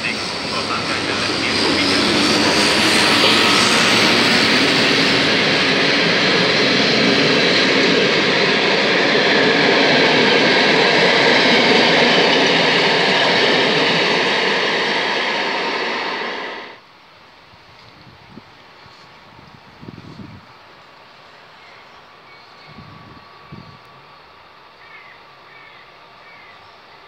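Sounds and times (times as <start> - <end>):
train wheels rumbling on rails: 0.0 - 16.8.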